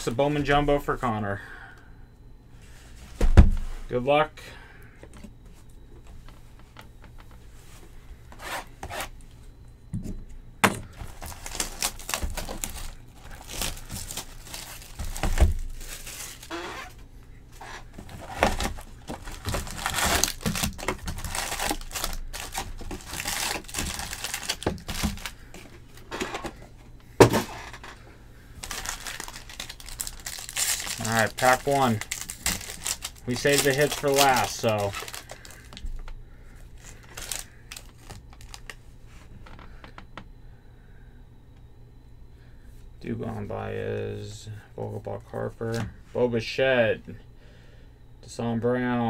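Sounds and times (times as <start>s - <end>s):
packs clicking and knocking: 10.9s - 16.9s, 17.7s - 26.6s
plastic wrapping crinkling and tearing: 11.0s - 17.0s, 17.6s - 26.1s, 28.6s - 36.1s, 36.8s - 38.8s.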